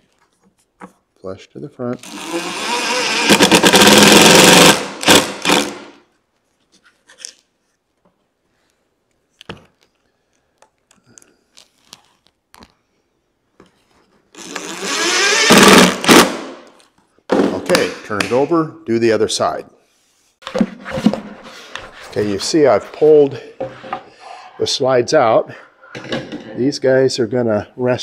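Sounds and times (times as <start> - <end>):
cordless drill whirring: 2.0 - 6.0, 14.4 - 16.2.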